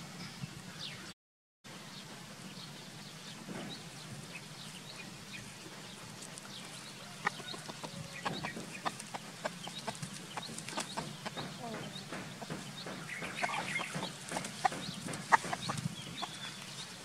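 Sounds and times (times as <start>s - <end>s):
rooster clucking: 6.4s - 17.0s.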